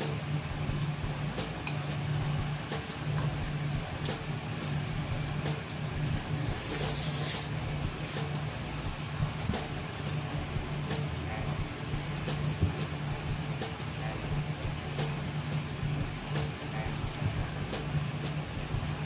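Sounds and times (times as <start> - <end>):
low hum: 0.0 - 19.0
brief hiss: 6.5 - 8.4.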